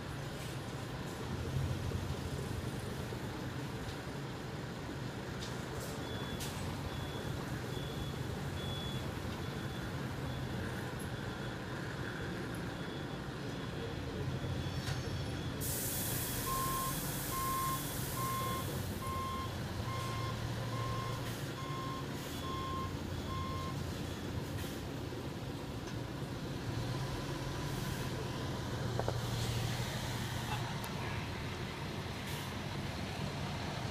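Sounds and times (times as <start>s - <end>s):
reversing alarm beeping: 6.0s - 24.3s
air brakes hissing: 14.8s - 18.8s, 32.2s - 32.6s.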